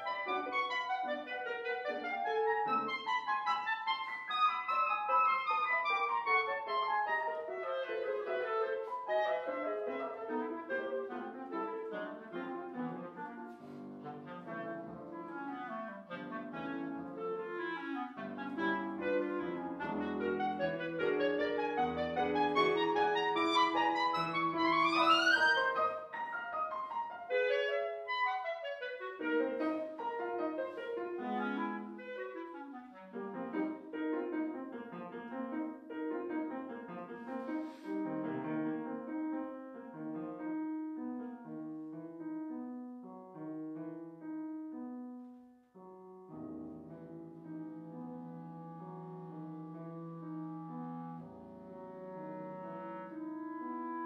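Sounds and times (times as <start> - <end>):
clarinet: 0.0 - 54.0
piano: 0.0 - 54.0.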